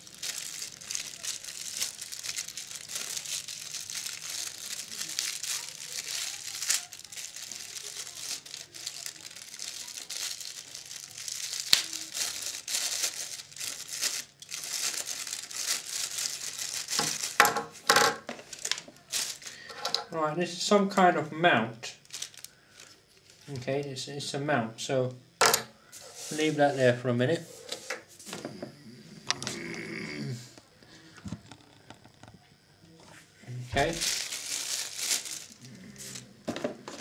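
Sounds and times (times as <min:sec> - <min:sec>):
plastic bag crinkling: 0:00.0 - 0:19.7, 0:21.9 - 0:23.6, 0:26.0 - 0:27.7, 0:33.8 - 0:37.0.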